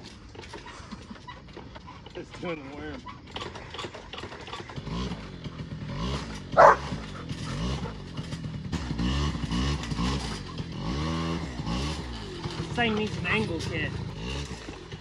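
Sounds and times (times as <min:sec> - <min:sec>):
quad engine revving: 0:00.0 - 0:15.0
dog barking loudly: 0:06.5 - 0:08.0.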